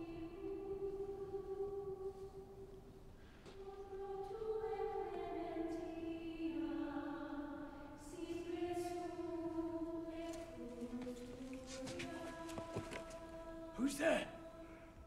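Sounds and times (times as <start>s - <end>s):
choir chanting in unison: 3.6s - 15.0s.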